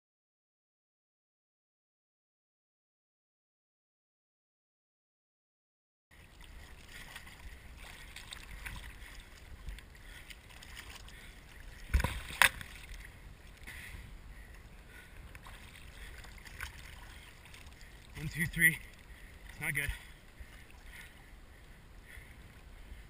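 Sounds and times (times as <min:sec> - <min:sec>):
choppy water sloshing: 0:06.1 - 0:23.0.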